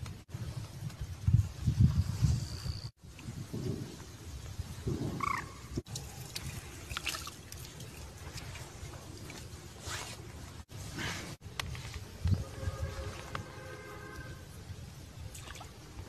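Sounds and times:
water dripping: 0:05.3 - 0:09.6, 0:15.2 - 0:16.0.

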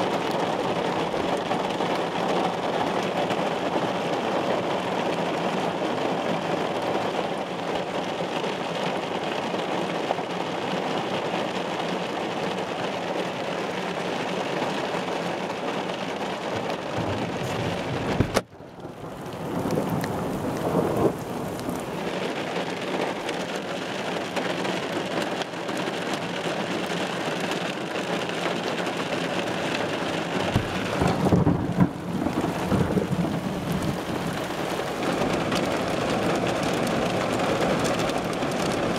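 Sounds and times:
heavy rain on car roof: 0:00.0 - 0:38.9
thunder rumble: 0:16.8 - 0:22.2, 0:30.3 - 0:38.9.

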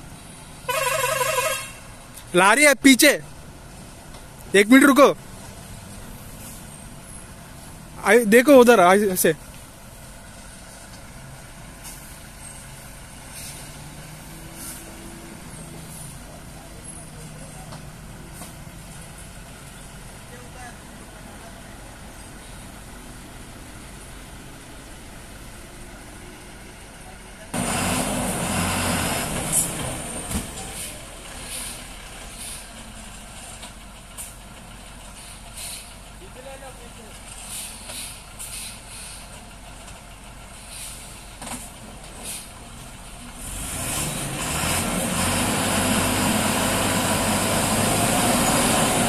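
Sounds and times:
lorry diesel engine running: 0:03.1 - 0:49.0
air brake hisses: 0:13.3 - 0:15.1, 0:30.6 - 0:32.8, 0:35.1 - 0:36.0, 0:37.4 - 0:39.4, 0:40.6 - 0:41.2, 0:42.2 - 0:42.6.

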